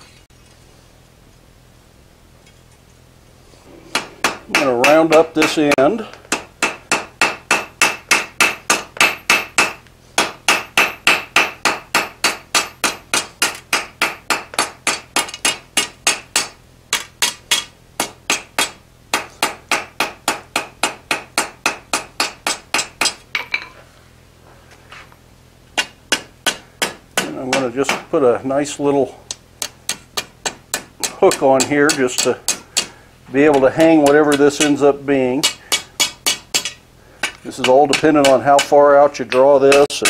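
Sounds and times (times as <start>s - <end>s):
hammer ringing on anvil: 35.4s - 38.7s.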